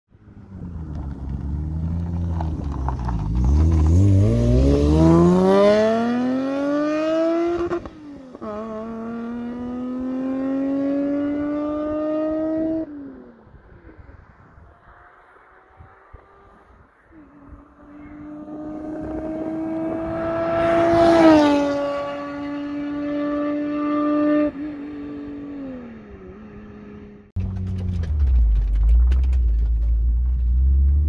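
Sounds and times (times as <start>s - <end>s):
engine accelerating hard: 3.3s - 12.9s, 17.4s - 24.6s.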